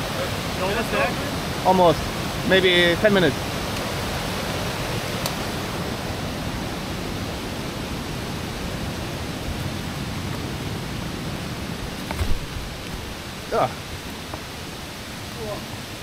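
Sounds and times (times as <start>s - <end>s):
waterfall rushing: 0.0s - 16.0s
low thump: 12.0s - 13.1s.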